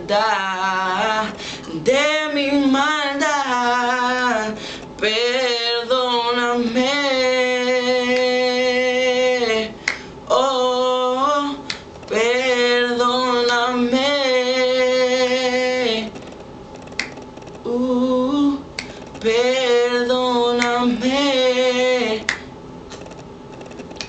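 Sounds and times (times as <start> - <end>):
man singing unaccompanied: 0.0 - 16.2, 19.2 - 22.3
finger snaps: 9.8 - 10.1, 11.6 - 11.9, 16.1 - 17.6, 18.8 - 19.3, 20.6 - 20.8, 22.2 - 24.0.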